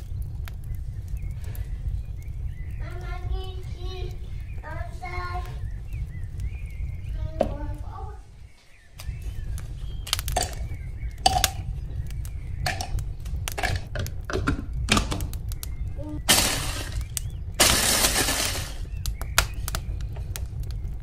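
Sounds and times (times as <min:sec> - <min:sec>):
cake layers crackling: 0:09.0 - 0:21.0.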